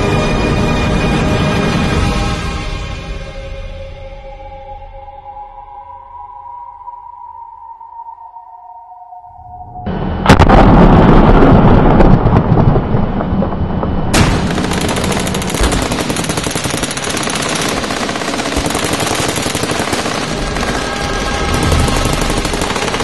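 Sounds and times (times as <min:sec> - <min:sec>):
rapid machine rattle: 0:14.4 - 0:23.0.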